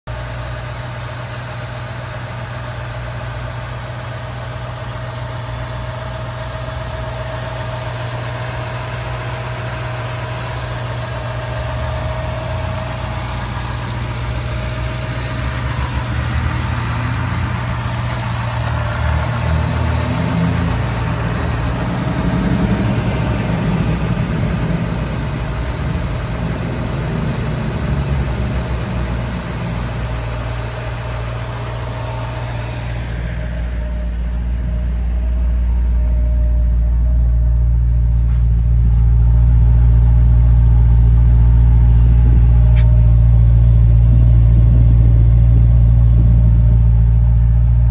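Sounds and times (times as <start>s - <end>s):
car engine idling: 0.1s - 47.9s
faint steady whine: 29.6s - 47.9s.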